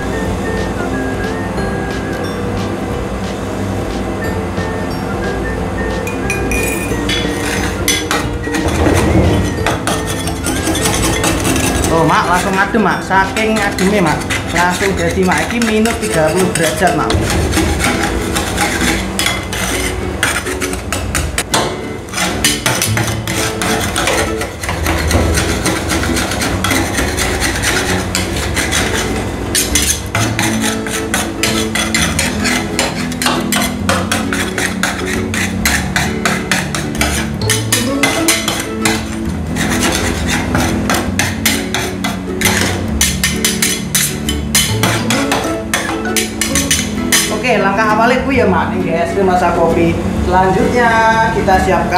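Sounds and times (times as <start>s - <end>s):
metal spatulas clacking and scraping: 6.6s - 47.5s.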